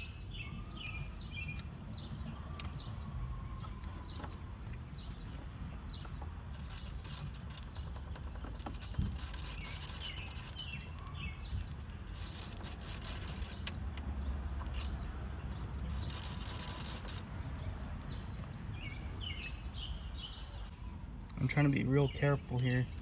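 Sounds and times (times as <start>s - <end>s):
low outdoor rumble: 0.0s - 23.0s.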